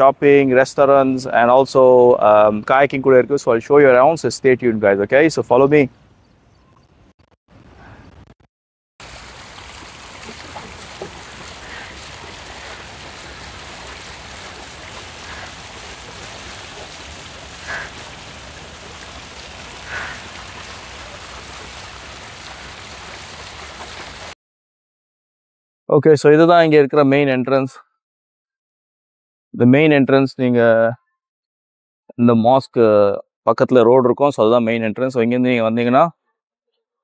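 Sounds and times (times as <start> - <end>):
water cascading down fountain: 9.0 - 24.4.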